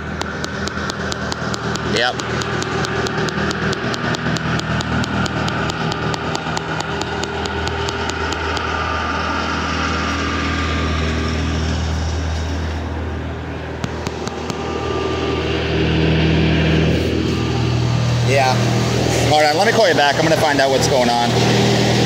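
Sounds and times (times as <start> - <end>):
fast ticking: 0.0 - 11.8
vehicle engine idling: 0.0 - 22.0.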